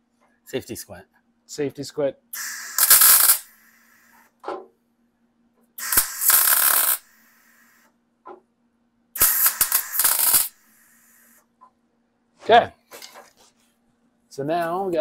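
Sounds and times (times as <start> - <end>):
welding crackle: 2.4 - 3.6, 5.8 - 7.7, 9.2 - 10.8.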